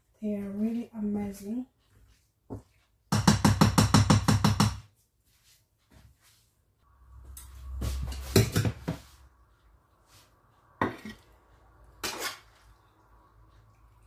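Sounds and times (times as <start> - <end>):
utensil scraping metal pan: 12.0 - 12.5.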